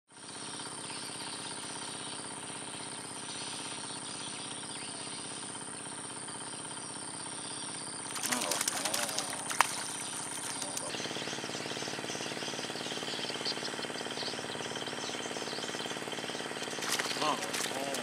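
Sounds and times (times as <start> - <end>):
insect pulsing buzz: 0.2 - 18.0
insect high-pitched trill: 6.2 - 18.0.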